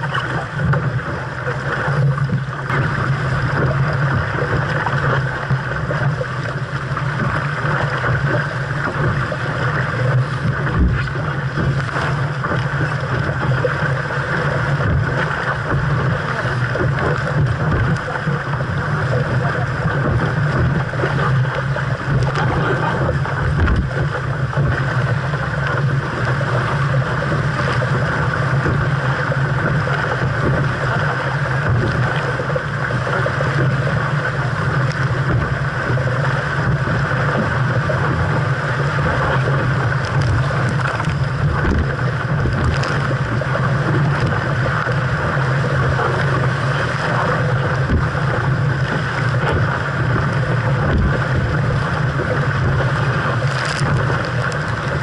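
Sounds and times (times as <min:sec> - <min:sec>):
wind and water rushing: 0:00.0 - 0:55.0
dull low knocks: 0:02.2 - 0:33.9, 0:34.6 - 0:54.8
wind buffeting microphone: 0:02.2 - 0:55.0.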